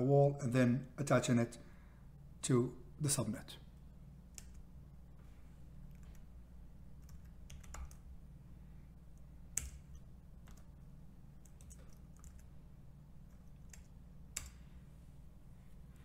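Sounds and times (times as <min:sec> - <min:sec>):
faint low hum: 0:00.0 - 0:16.0
keyboard typing: 0:07.0 - 0:08.1, 0:09.5 - 0:10.8, 0:11.4 - 0:12.6, 0:13.2 - 0:14.6.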